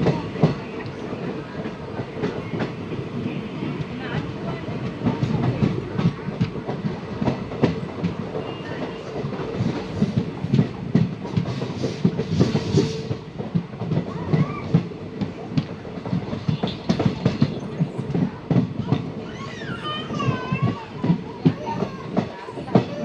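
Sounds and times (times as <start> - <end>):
train wheels clattering over rails: 0.0 - 23.0.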